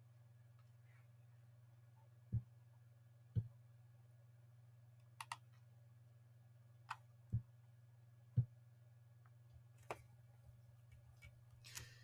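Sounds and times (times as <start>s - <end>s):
computer mouse clicks: 5.0s - 5.5s.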